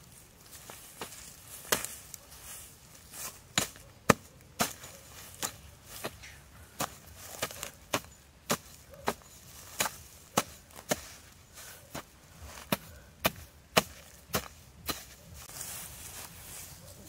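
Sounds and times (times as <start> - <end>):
hand tool chopping into dry earth: 0.9 - 2.2, 3.2 - 15.5.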